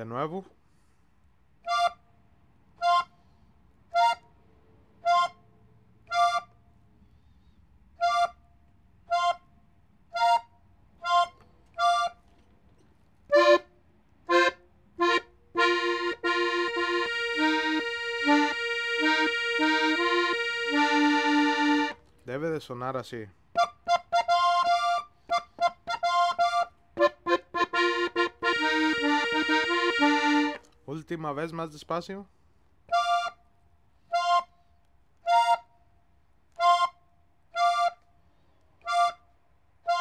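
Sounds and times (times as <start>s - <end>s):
button accordion playing: 2.8s - 3.1s, 3.9s - 4.3s, 5.0s - 5.4s, 9.1s - 9.5s, 10.1s - 12.2s, 13.3s - 22.0s, 23.6s - 30.7s, 32.9s - 33.4s.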